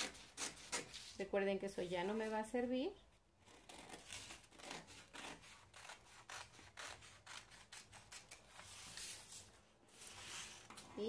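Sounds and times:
scissors snipping paper: 3.5 - 9.2.

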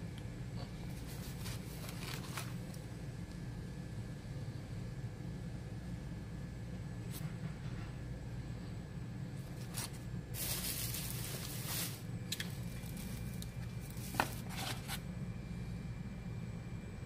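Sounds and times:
steady low hum: 0.0 - 17.0
cardboard packaging rustling: 0.9 - 2.8, 9.5 - 15.0.

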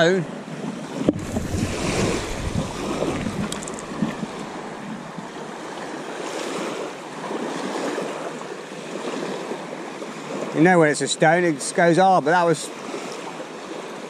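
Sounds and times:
wind buffeting microphone: 0.0 - 7.4
waves washing onto sandy shore: 0.0 - 14.0.

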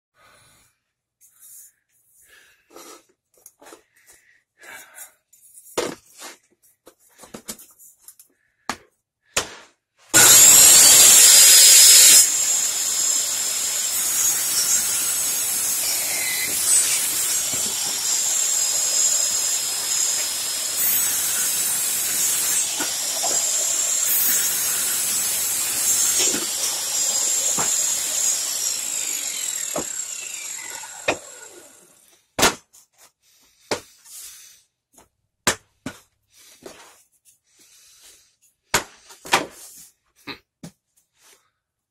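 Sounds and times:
circular saw ripping wood: 10.1 - 32.2.

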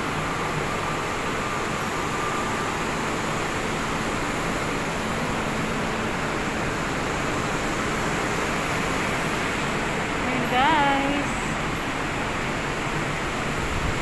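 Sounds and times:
ventilation hum: 0.0 - 14.0.

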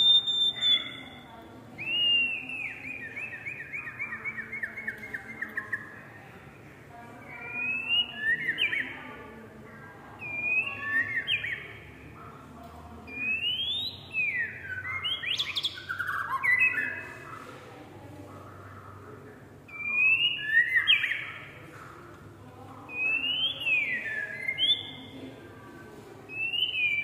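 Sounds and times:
bird singing whistled notes: 0.0 - 1.2, 1.8 - 5.9, 7.4 - 8.9, 10.2 - 11.6, 13.1 - 17.0, 19.7 - 21.5, 22.9 - 25.0, 26.3 - 27.0.

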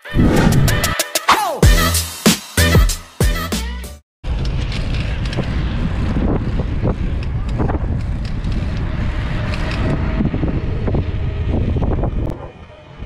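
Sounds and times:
road noise: 4.2 - 13.0
wind rumbling on microphone: 4.2 - 13.0.

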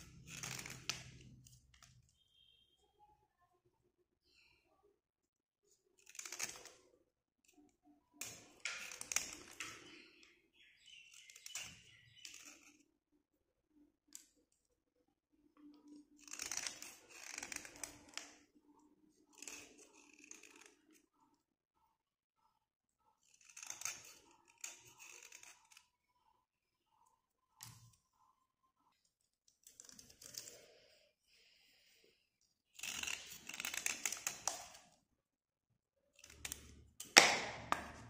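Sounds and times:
metal blade scraping slate pencil: 23.2 - 26.0.

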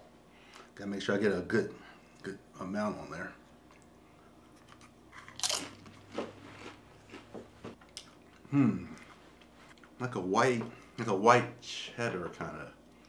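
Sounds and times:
chip crunching while chewed: 4.5 - 10.0.

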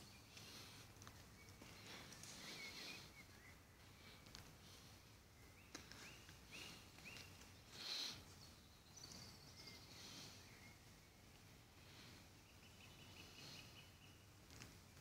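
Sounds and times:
bird calling: 1.4 - 4.2.

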